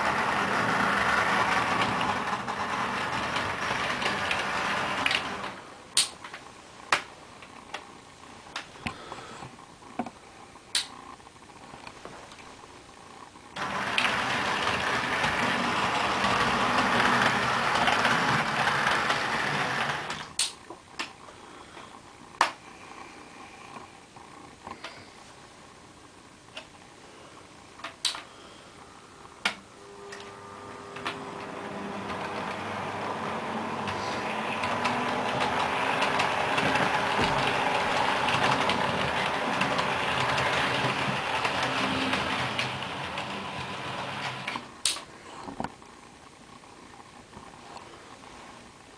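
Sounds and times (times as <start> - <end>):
model train running on track: 0.0 - 5.5, 13.6 - 20.2, 31.4 - 44.5
sharp clicks: 10.7 - 11.0, 20.1 - 21.2
wheels clicking over rail joints: 13.6 - 20.2, 31.0 - 44.6.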